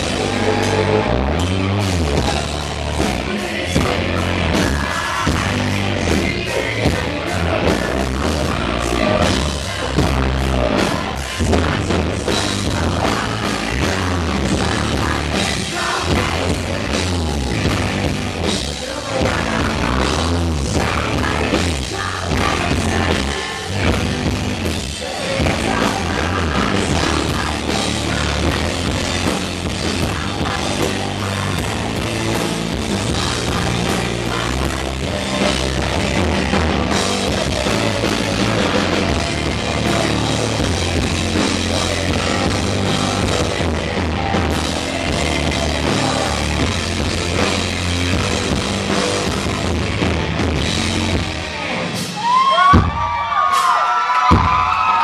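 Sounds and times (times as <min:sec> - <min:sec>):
live rock band playing: 0:00.0 - 0:55.0
woman singing: 0:25.1 - 0:47.1.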